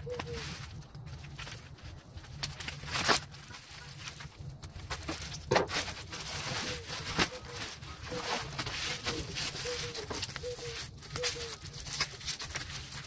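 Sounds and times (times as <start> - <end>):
plastic crackling rips: 0.0 - 13.0
plastic crinkling: 0.0 - 13.0.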